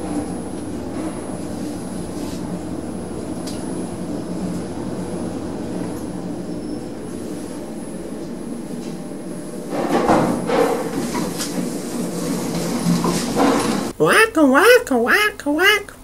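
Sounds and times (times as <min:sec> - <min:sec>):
lift car rumble and air rush: 0:00.0 - 0:14.0.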